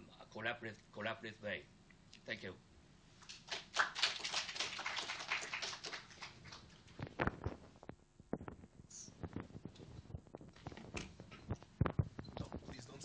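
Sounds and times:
audience applause: 3.4s - 7.0s.

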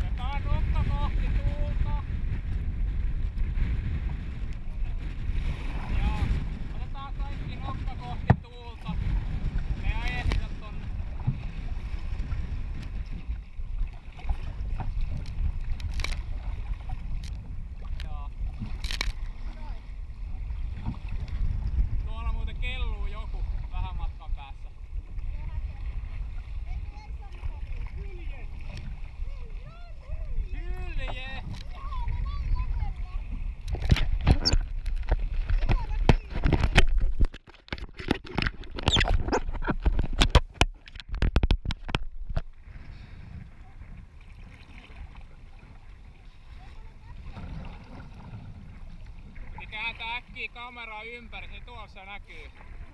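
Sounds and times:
paddle splashes: 0.0s - 22.2s, 23.0s - 52.9s
water splashing and sloshing: 0.0s - 52.9s
wind rumbling on microphone: 0.0s - 52.9s
camera mount clicks and scrapes: 15.2s - 16.2s, 18.8s - 19.2s, 33.6s - 42.5s.

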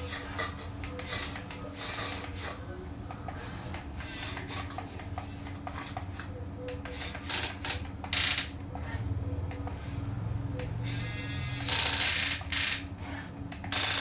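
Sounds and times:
small electric motors whirring: 9.7s - 14.0s.

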